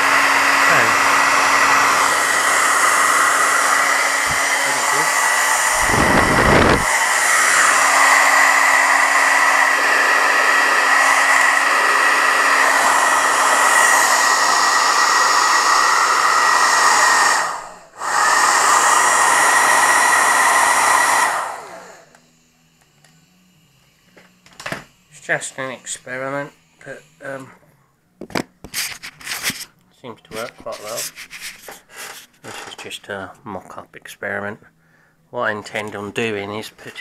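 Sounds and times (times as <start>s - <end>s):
hair dryer running: 0.0s - 27.5s.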